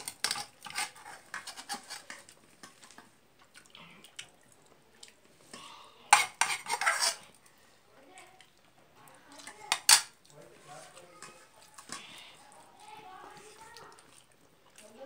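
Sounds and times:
fingers mixing rice on metal plate: 0:00.0 - 0:04.2, 0:05.0 - 0:07.5.

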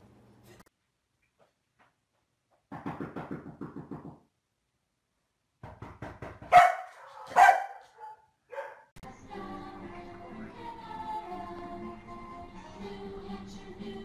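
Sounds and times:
dog barking loudly: 0:06.5 - 0:08.9.

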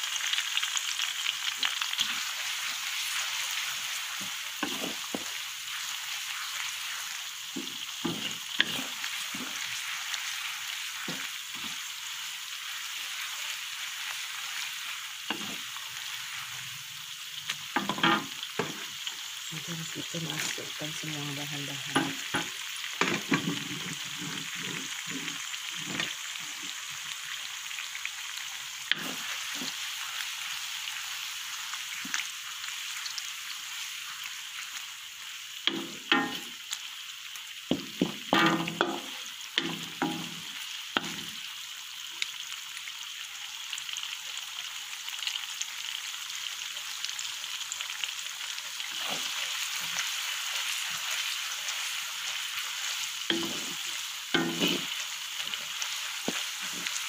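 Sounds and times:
onions sizzling in hot oil: 0:00.0 - 0:57.0
wooden spatula scraping pan: 0:04.2 - 0:05.4, 0:07.6 - 0:09.8, 0:23.0 - 0:26.1, 0:54.4 - 0:55.0.

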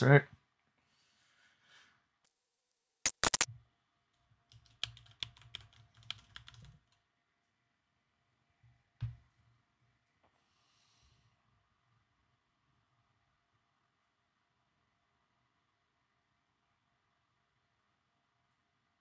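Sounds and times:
keyboard keystrokes: 0:03.1 - 0:03.5, 0:04.5 - 0:07.0.

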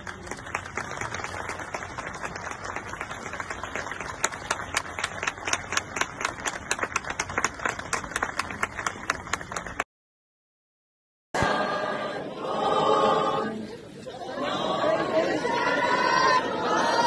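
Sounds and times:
crowd applauding: 0:00.0 - 0:09.9.

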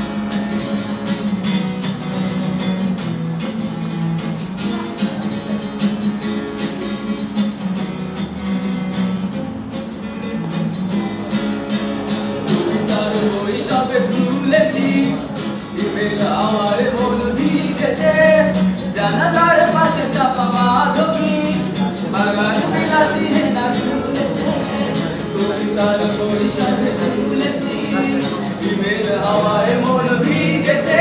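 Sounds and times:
acoustic guitar strumming: 0:00.0 - 0:31.0
man singing: 0:12.5 - 0:31.0.

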